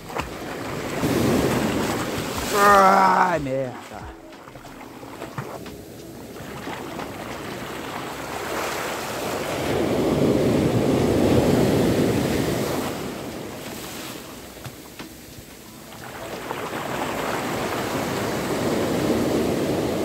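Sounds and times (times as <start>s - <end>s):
sea surf washing on sand: 0.0s - 20.0s
wind on microphone: 6.0s - 13.7s.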